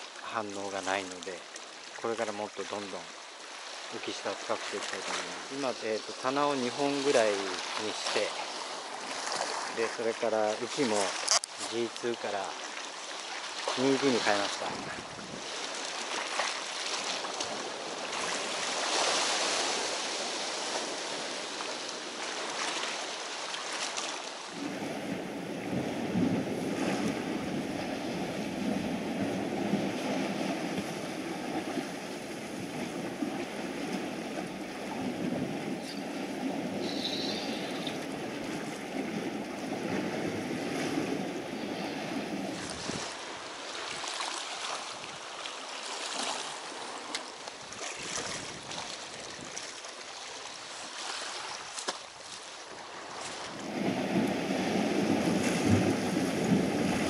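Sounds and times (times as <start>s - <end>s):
waves washing against rocks: 3.9s - 47.1s, 53.0s - 57.0s
wind on microphone: 14.4s - 15.6s, 24.5s - 44.1s, 47.6s - 49.6s, 53.4s - 57.0s.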